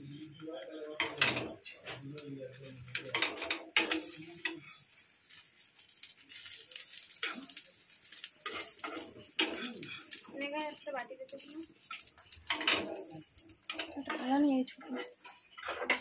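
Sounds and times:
bread sizzling in oil: 0:00.0 - 0:16.0
metal spatula scraping a pan: 0:01.0 - 0:05.5, 0:06.3 - 0:10.3, 0:11.8 - 0:16.0.

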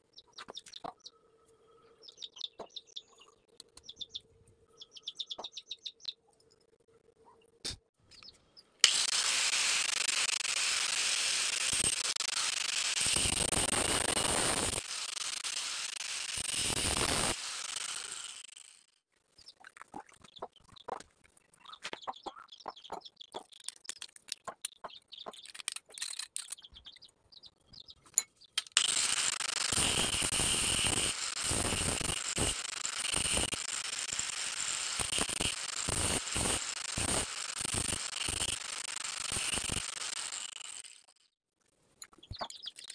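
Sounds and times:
angle grinder cutting pipe: 0:08.8 - 0:18.9, 0:28.6 - 0:41.2.

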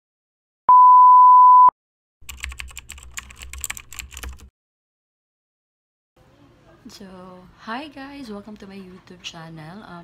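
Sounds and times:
steady high beep: 0:00.7 - 0:01.7
keyboard typing clicks: 0:02.3 - 0:04.5.

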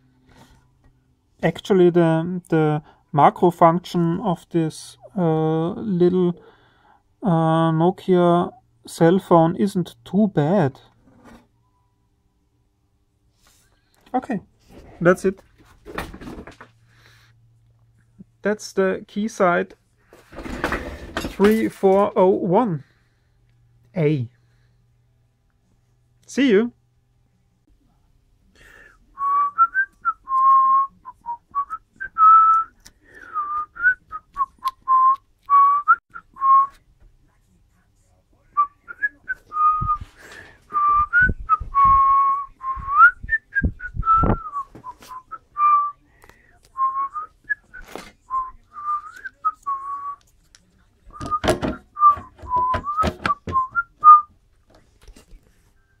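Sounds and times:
handling knocks and thumps: 0:15.5 - 0:16.8, 0:51.2 - 0:53.8
man whistling a tune: 0:29.2 - 0:36.8, 0:38.6 - 0:46.1, 0:46.8 - 0:50.2, 0:51.1 - 0:54.3.

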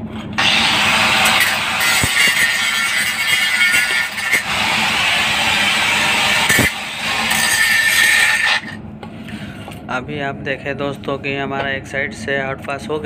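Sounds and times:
angle grinder grinding steel: 0:00.4 - 0:08.8.

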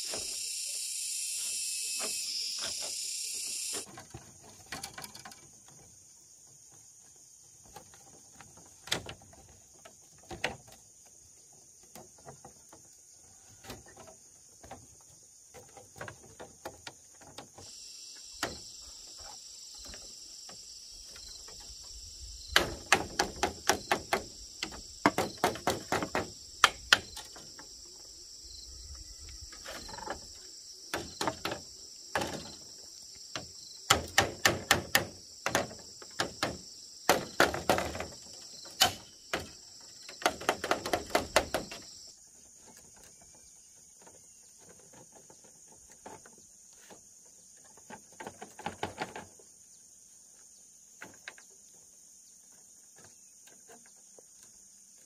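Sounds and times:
insects droning: 0:00.0 - 0:55.0
hand tool striking wood: 0:22.5 - 0:27.6, 0:30.9 - 0:32.6, 0:33.3 - 0:41.9.

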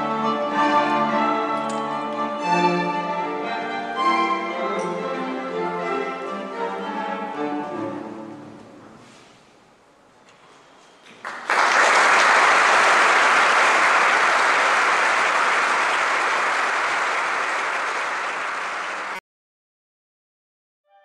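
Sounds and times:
audience applauding: 0:11.2 - 0:19.2.

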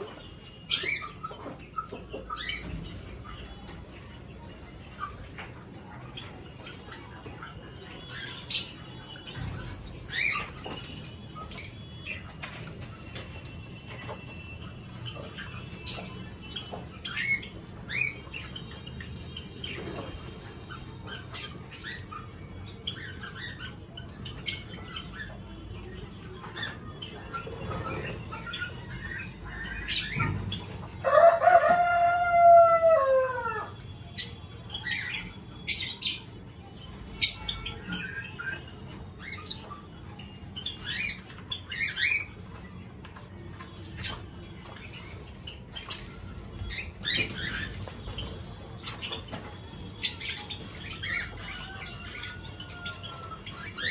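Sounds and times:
small birds chirping: 0:00.0 - 0:32.1, 0:33.0 - 0:53.9.

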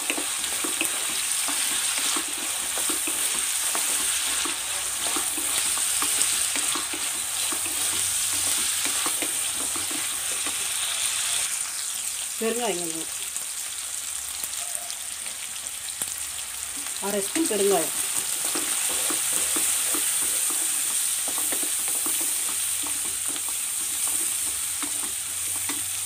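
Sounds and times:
wooden spatula scraping pan: 0:00.0 - 0:11.0, 0:17.9 - 0:26.0
food sizzling in hot oil: 0:00.0 - 0:26.0.

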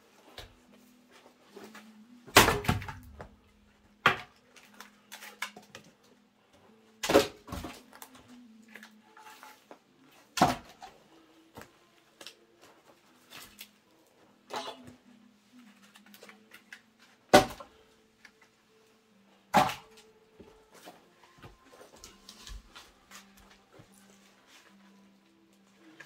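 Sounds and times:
axe knocks splitting wood: 0:02.3 - 0:03.2, 0:17.3 - 0:17.7, 0:19.5 - 0:19.8.

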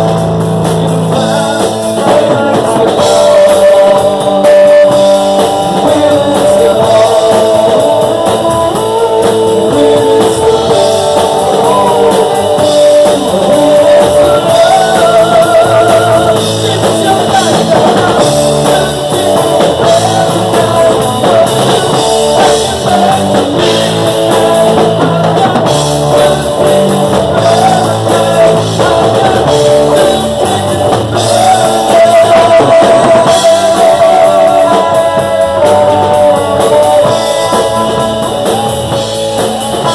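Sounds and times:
drums: 0:00.0 - 0:39.9
electric guitar: 0:00.0 - 0:39.9
man singing: 0:00.0 - 0:39.9.

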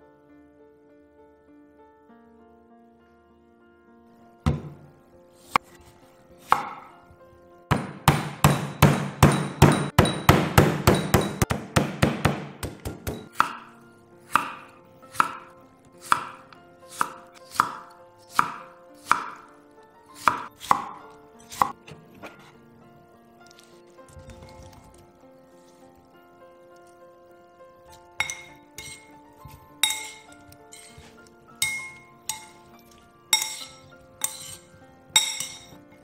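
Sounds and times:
knife chopping on wooden board: 0:06.5 - 0:06.9, 0:07.7 - 0:13.7, 0:14.3 - 0:16.4, 0:17.0 - 0:19.4, 0:20.2 - 0:21.8.

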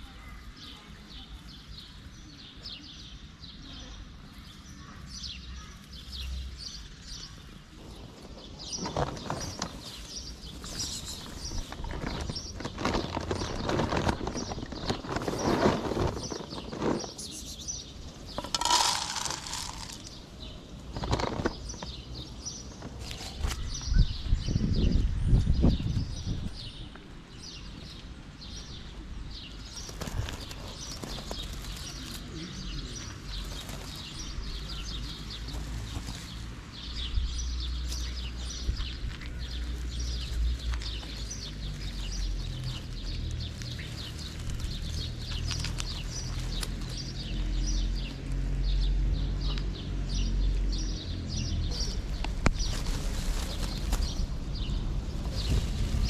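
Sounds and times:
cat crunching dry kibble: 0:18.3 - 0:20.2.

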